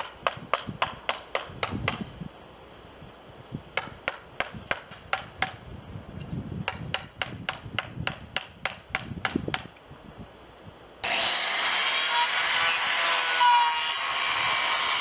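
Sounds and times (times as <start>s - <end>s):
hammer striking chisel into wood: 0.0s - 2.1s, 3.8s - 5.6s, 6.7s - 9.7s.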